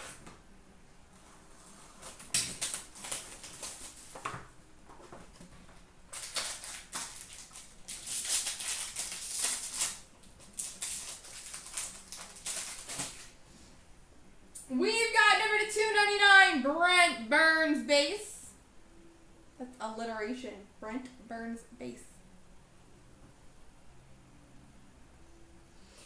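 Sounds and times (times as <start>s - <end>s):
plastic wrapper crinkling: 2.0s - 4.4s, 6.1s - 13.4s.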